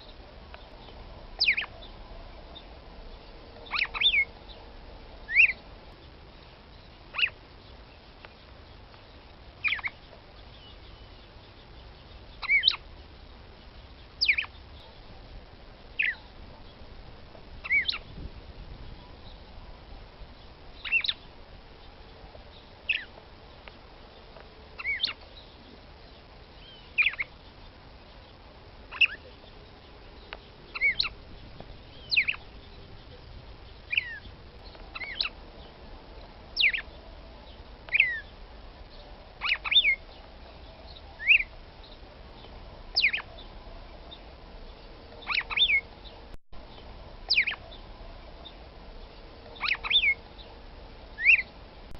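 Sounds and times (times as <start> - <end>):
bird sharp call notes: 47.3 - 47.8.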